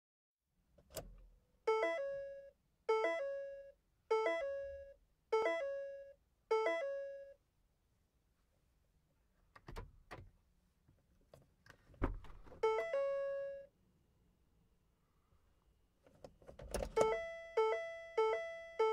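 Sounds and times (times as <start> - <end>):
car warning chime: 1.7 - 7.4, 12.6 - 13.7, 16.9 - 18.9.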